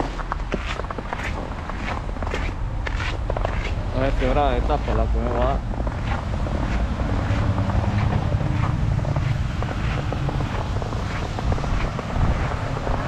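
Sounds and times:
car traffic rumble: 0.0s - 13.0s
wind buffeting microphone: 0.0s - 13.0s.

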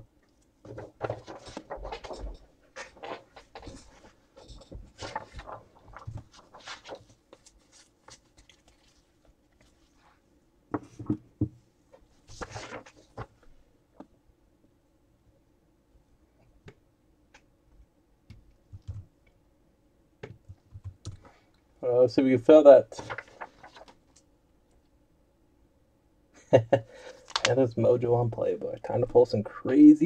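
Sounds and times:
rustling and tapping of handled things: 0.6s - 9.0s, 10.7s - 14.1s.

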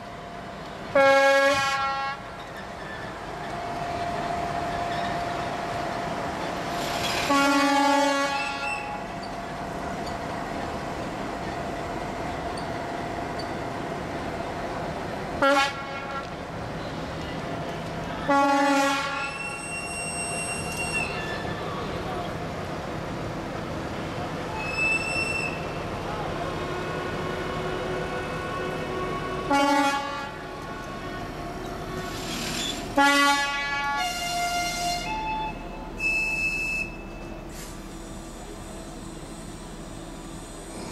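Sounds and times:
locomotive horn blasts: 0.9s - 2.3s, 7.2s - 9.0s, 15.4s - 16.4s, 18.3s - 19.6s, 26.7s - 32.2s, 33.0s - 35.3s.

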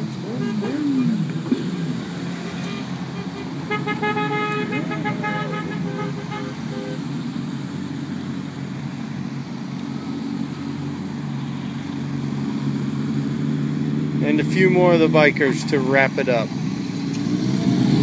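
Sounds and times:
cars driving slowly past: 0.0s - 18.0s
car horn honking: 0.3s - 1.1s, 2.3s - 7.0s.

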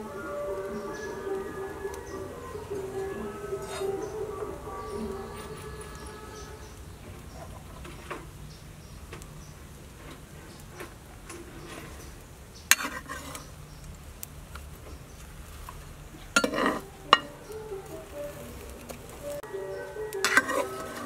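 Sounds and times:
spatula scraping in pan: 0.6s - 8.3s, 9.9s - 13.6s, 14.6s - 19.4s, 20.1s - 21.0s
metal spatula clanking on pan: 12.7s - 13.4s, 16.4s - 17.4s, 20.2s - 20.9s.

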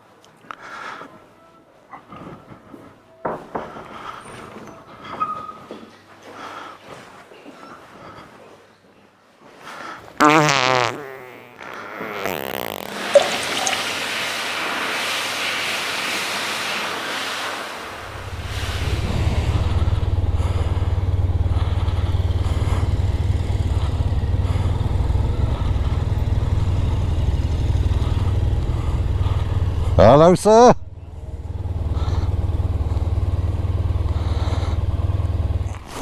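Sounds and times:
steady rushing noise: 13.5s - 29.8s
loud wavering noise: 17.8s - 24.4s
motorcycle engine rumbling: 17.9s - 30.2s, 30.8s - 36.0s.

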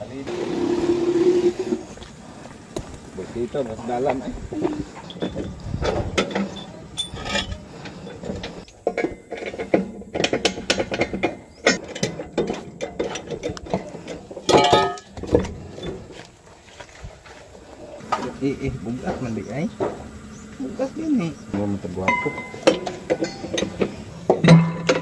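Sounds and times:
hand tools clicking and clinking: 4.0s - 16.1s, 22.0s - 25.0s.

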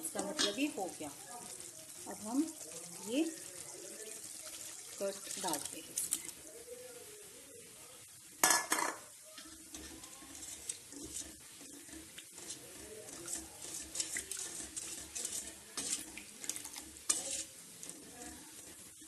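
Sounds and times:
ladle stirring and scraping pan: 0.0s - 6.5s, 8.2s - 19.0s
liquid splashing into hot pan: 1.4s - 6.5s, 8.4s - 19.0s.

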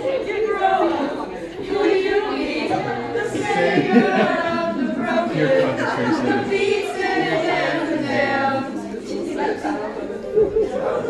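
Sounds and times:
group singing unaccompanied: 0.0s - 11.0s.

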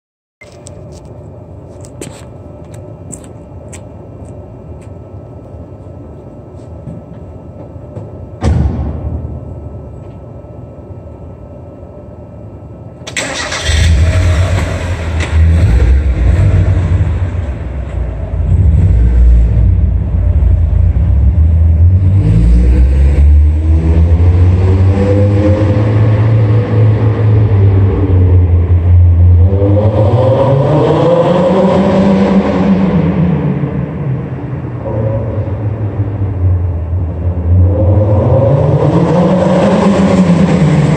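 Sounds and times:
car engine exhaust revving: 13.4s - 40.9s.

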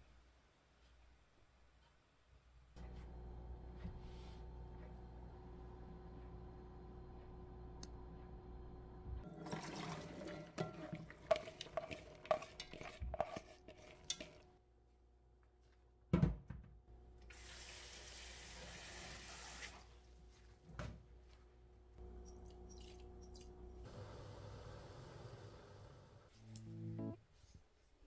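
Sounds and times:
kitchen tap running: 9.2s - 14.4s, 17.3s - 19.9s
water and beans poured into colander: 9.2s - 14.4s.

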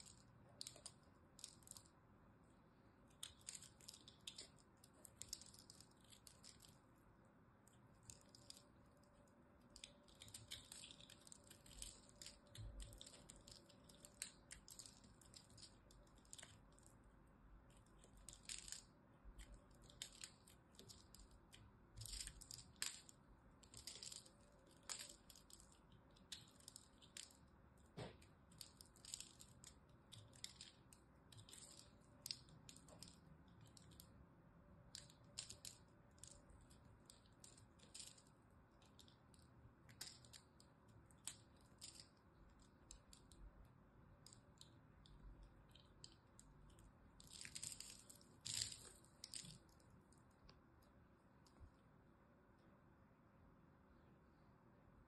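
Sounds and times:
knife shaving dried soap: 3.0s - 6.9s, 7.7s - 34.2s.

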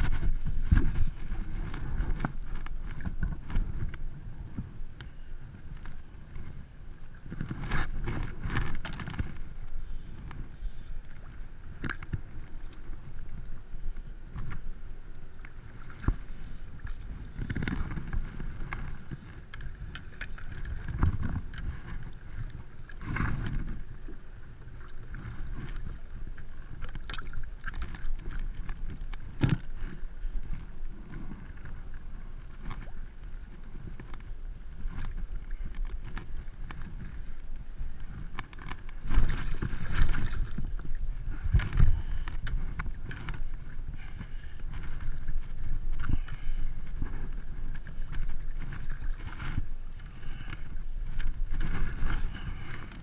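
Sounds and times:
water lapping against kayak hull: 0.0s - 53.0s
wind on microphone: 0.0s - 53.0s.

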